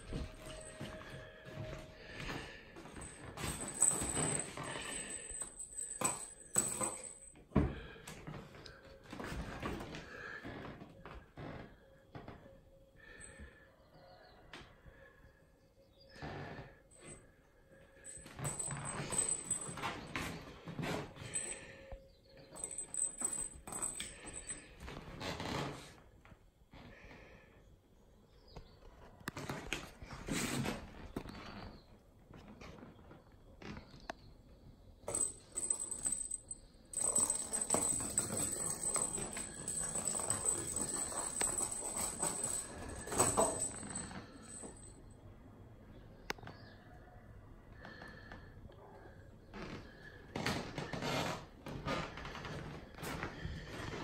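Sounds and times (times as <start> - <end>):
faint high ringing: 0.0 - 8.1.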